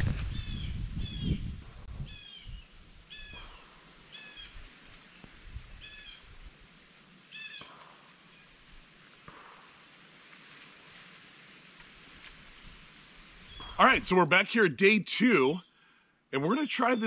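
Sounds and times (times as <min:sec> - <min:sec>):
low wind rumble: 0:00.0 - 0:03.8, 0:05.4 - 0:06.6
bird calling: 0:02.1 - 0:04.7, 0:05.8 - 0:06.3, 0:07.3 - 0:08.5, 0:13.4 - 0:14.1.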